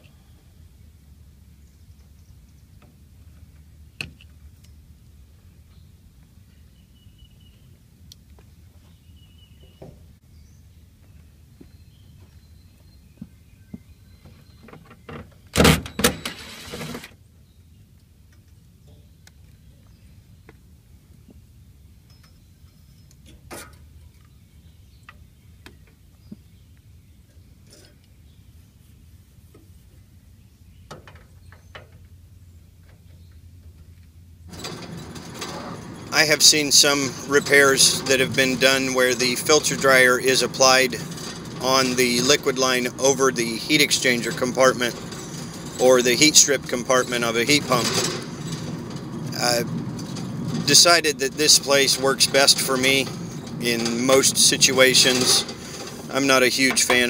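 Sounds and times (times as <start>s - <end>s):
low outdoor rumble: 27.0s - 57.0s.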